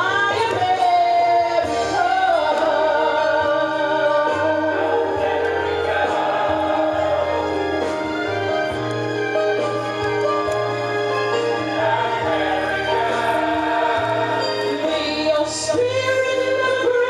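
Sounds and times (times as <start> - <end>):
woman singing with vibrato: 0.0 - 7.0, 12.1 - 17.0.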